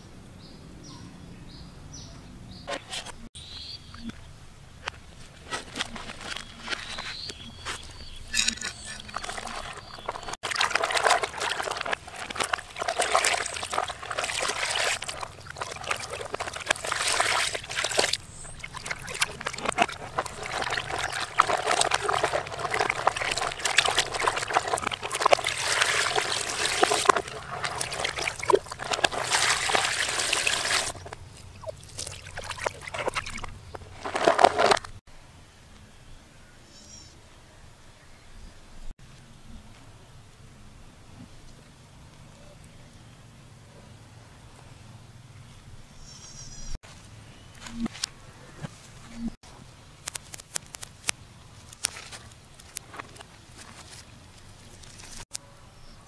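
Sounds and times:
water sloshing in a plastic basin: 0:05.6 - 0:35.0.

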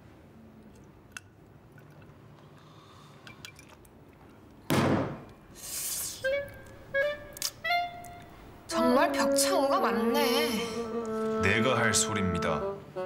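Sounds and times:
loud thump: 0:04.7 - 0:05.3
brief hiss: 0:05.6 - 0:06.3
woodwind music: 0:06.0 - 0:13.0.

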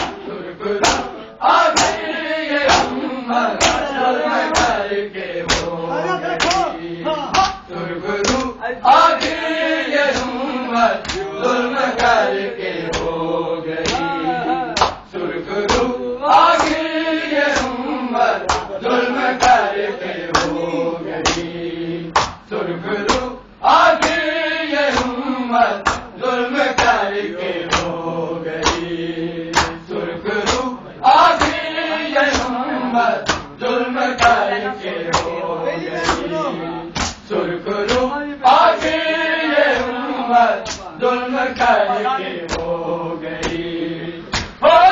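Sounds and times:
men chanting together: 0:00.0 - 0:44.9
hands slapping chests: 0:00.8 - 0:01.1, 0:01.8 - 0:02.0, 0:03.6 - 0:03.9, 0:05.5 - 0:05.7, 0:06.4 - 0:06.7, 0:07.3 - 0:07.6, 0:08.2 - 0:08.5, 0:11.0 - 0:11.3, 0:13.8 - 0:14.1, 0:14.8 - 0:15.0, 0:16.6 - 0:16.8, 0:17.5 - 0:17.8, 0:21.2 - 0:21.5, 0:22.2 - 0:22.4, 0:25.8 - 0:26.1, 0:27.7 - 0:28.0, 0:28.6 - 0:28.9, 0:29.5 - 0:29.8, 0:30.4 - 0:30.7, 0:31.4 - 0:31.6, 0:32.3 - 0:32.6, 0:33.2 - 0:33.5, 0:37.0 - 0:37.2, 0:40.7 - 0:40.9, 0:44.3 - 0:44.6.

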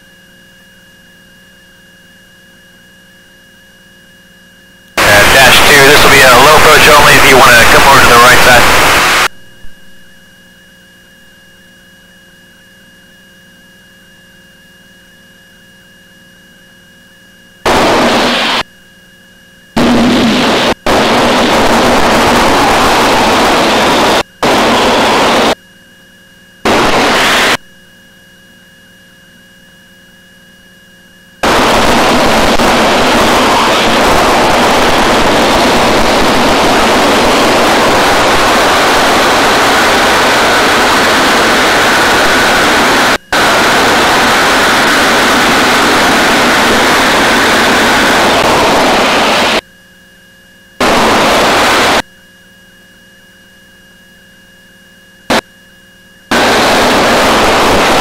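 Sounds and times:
faint steady tones: 0:00.0 - 0:58.0
loud radio hiss: 0:05.0 - 0:09.3, 0:17.6 - 0:18.7, 0:19.8 - 0:25.6, 0:26.6 - 0:27.6, 0:31.4 - 0:49.6, 0:50.8 - 0:52.0, 0:56.3 - 0:58.0.

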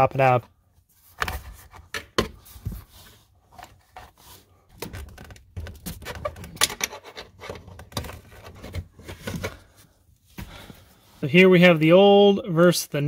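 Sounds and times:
rubber and plastic parts scraping: 0:01.0 - 0:09.8.

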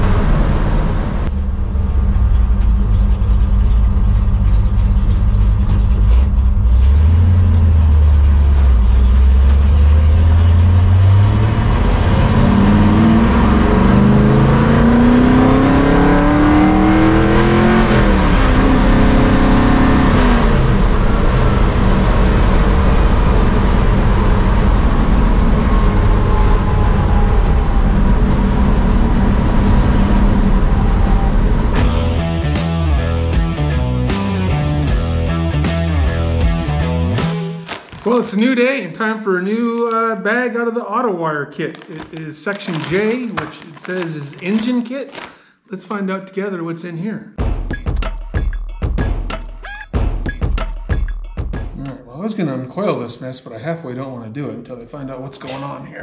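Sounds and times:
car engine and exhaust: 0:00.0 - 0:37.4.

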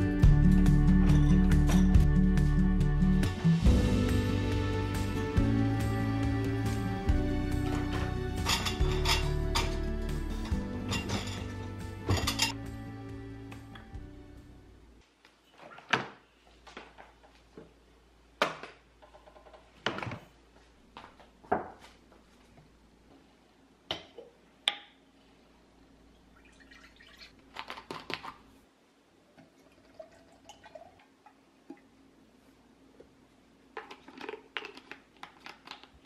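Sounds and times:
glass jars knocking and clinking: 0:07.9 - 0:09.8, 0:10.5 - 0:12.6
liquid pouring: 0:26.3 - 0:27.4, 0:29.3 - 0:31.9.

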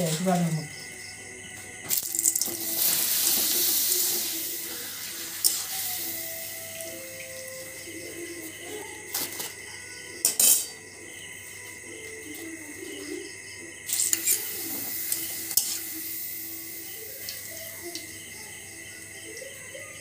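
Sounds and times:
frying in hot oil sizzling: 0:01.9 - 0:09.6, 0:13.9 - 0:18.3
metal utensil clinking on wok: 0:10.2 - 0:10.8.

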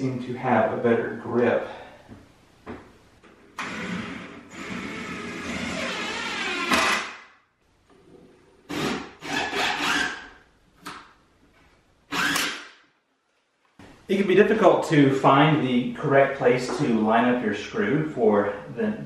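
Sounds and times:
drill driving screw: 0:03.6 - 0:07.2, 0:08.7 - 0:10.3, 0:12.1 - 0:12.7.

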